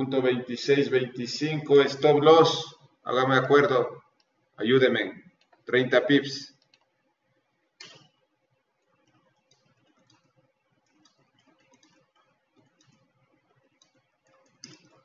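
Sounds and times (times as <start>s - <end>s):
keyboard and mouse clicking: 6.5s - 6.9s, 7.8s - 8.2s, 8.8s - 15.0s.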